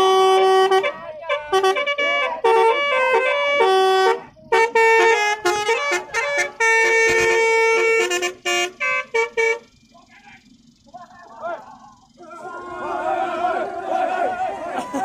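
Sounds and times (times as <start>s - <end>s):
musical air horns playing a tune: 0.0s - 9.8s.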